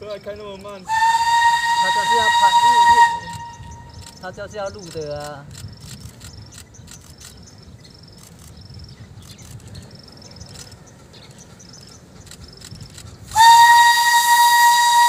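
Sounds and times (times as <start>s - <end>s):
faint insects chirping: 0.0s - 13.5s
steam whistle blast: 0.9s - 3.9s, 13.3s - 15.0s.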